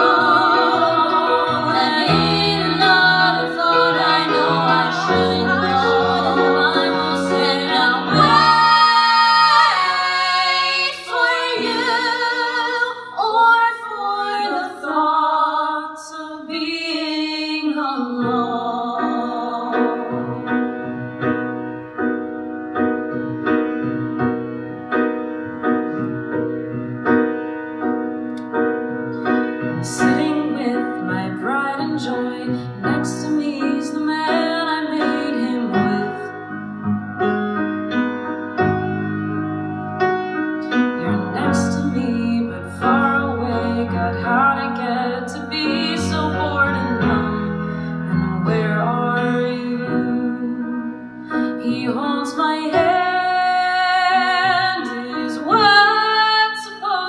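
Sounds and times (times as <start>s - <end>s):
piano accompaniment: 0.0s - 15.9s, 16.6s - 57.0s
woman singing: 0.0s - 20.3s, 29.8s - 36.3s, 41.0s - 47.5s, 48.1s - 57.0s.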